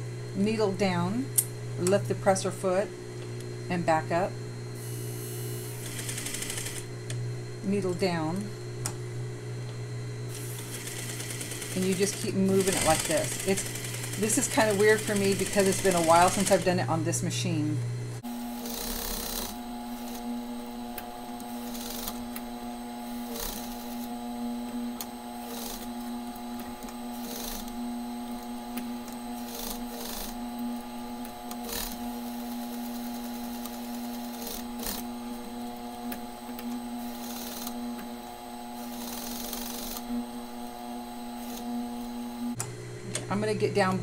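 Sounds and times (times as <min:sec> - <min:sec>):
sewing machine motor humming: 0:04.8 - 0:06.9, 0:10.3 - 0:16.8, 0:18.2 - 0:42.6
sewing machine needle running: 0:05.6 - 0:06.9, 0:10.3 - 0:16.8, 0:18.6 - 0:20.3, 0:21.4 - 0:22.4, 0:23.2 - 0:24.1, 0:25.0 - 0:30.4, 0:31.5 - 0:35.5, 0:36.5 - 0:37.8, 0:38.8 - 0:40.1, 0:41.4 - 0:41.7.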